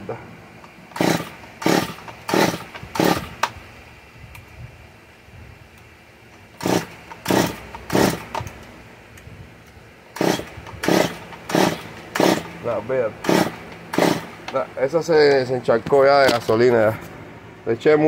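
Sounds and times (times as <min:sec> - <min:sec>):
chainsaw engine turning over: 0:00.6 - 0:03.6, 0:06.5 - 0:08.6, 0:10.1 - 0:14.6.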